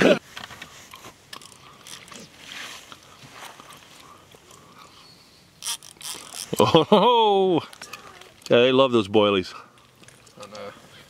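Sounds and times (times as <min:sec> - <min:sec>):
fishing rod handling noise: 0:00.4 - 0:02.3, 0:05.6 - 0:06.6, 0:09.8 - 0:10.4
fishing reel clicks: 0:05.6 - 0:06.6.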